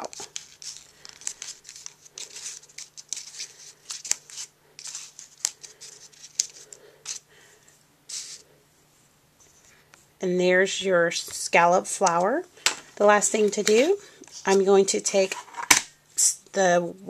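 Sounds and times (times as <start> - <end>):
bone folder scraping paper: 0.0 - 7.2
paper rustling: 0.0 - 7.2.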